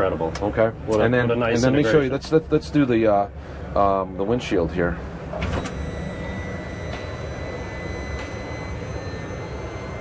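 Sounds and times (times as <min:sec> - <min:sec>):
electric motor running: 0:05.8 - 0:10.0.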